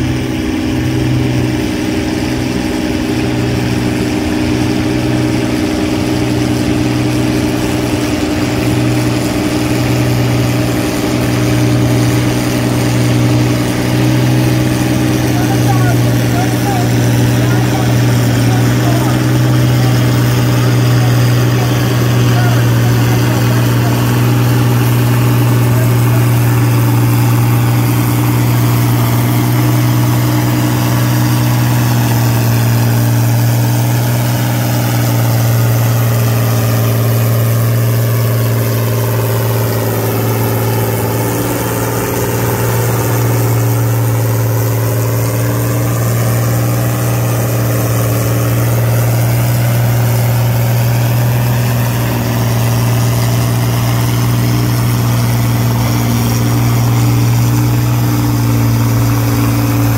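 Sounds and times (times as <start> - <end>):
tractor engine running: 0.0 - 59.9.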